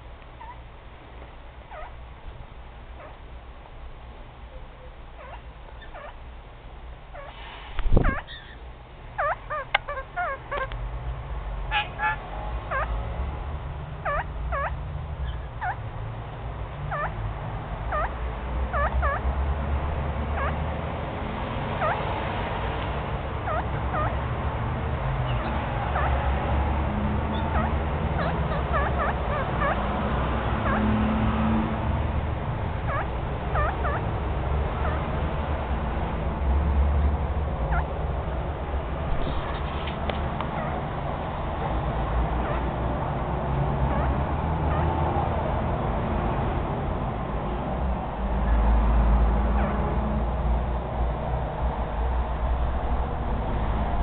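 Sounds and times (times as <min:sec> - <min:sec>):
parrot chattering chirps: 0:00.4 - 0:00.6, 0:01.7 - 0:02.0, 0:03.0 - 0:03.2, 0:04.6 - 0:06.2, 0:07.1 - 0:07.4, 0:08.0 - 0:08.6, 0:09.2 - 0:10.7, 0:11.7 - 0:13.0, 0:14.0 - 0:15.9, 0:16.9 - 0:17.2, 0:17.9 - 0:19.3, 0:20.4 - 0:20.6, 0:21.8 - 0:22.1, 0:23.4 - 0:24.2, 0:25.2 - 0:26.3, 0:27.2 - 0:30.0, 0:30.6 - 0:30.9, 0:32.8 - 0:34.1, 0:34.7 - 0:35.2, 0:37.6 - 0:38.0, 0:40.4 - 0:41.0, 0:42.3 - 0:42.7, 0:43.8 - 0:45.1.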